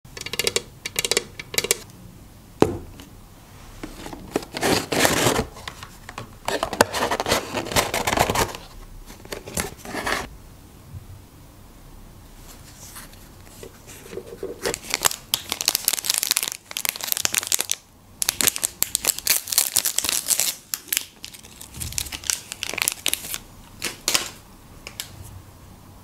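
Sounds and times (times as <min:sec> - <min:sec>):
plastic wrapper crinkling: 0:14.0 - 0:24.4.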